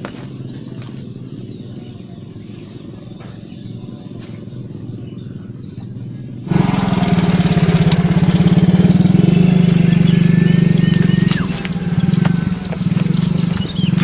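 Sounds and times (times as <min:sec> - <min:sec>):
bird chirps: 0:00.0 - 0:14.0
fast-pulsing engine-like drone: 0:00.0 - 0:14.0
steady low hum: 0:00.0 - 0:14.0.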